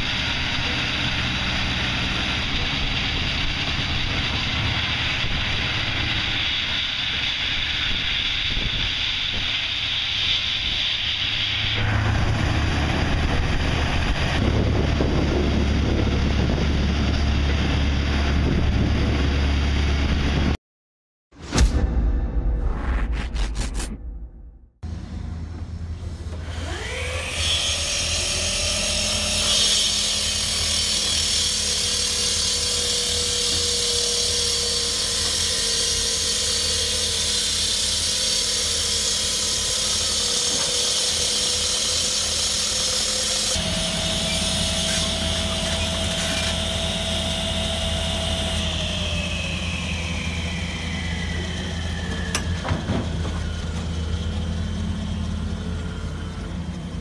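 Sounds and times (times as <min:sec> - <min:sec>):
excavator engine hum: 0:00.0 - 0:06.6, 0:11.2 - 0:20.6, 0:24.8 - 0:29.4, 0:38.6 - 0:57.0
saw grinding whine: 0:26.2 - 0:56.7.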